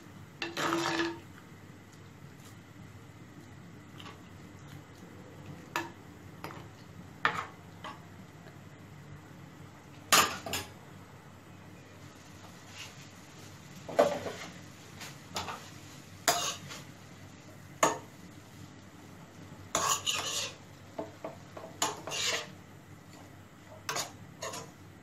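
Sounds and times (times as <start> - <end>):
spatula scraping a frying pan: 15.4 - 16.9, 19.7 - 20.7, 21.6 - 22.6, 23.8 - 24.8.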